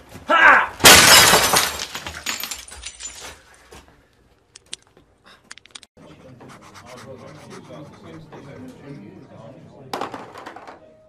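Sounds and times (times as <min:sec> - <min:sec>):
fist smashing computer monitor: 0:00.8 - 0:02.0.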